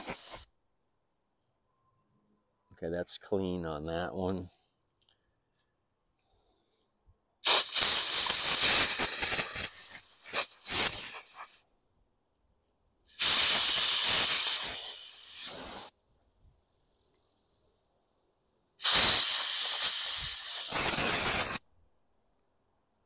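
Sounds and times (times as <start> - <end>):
compressed air blow gun hissing: 0.0 - 0.5, 7.4 - 11.6, 13.1 - 15.9, 18.8 - 21.6.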